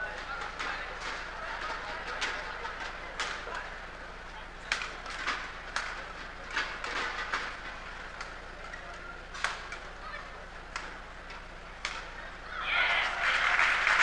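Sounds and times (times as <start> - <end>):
rackets hitting shuttlecock: 4.6 - 12.4.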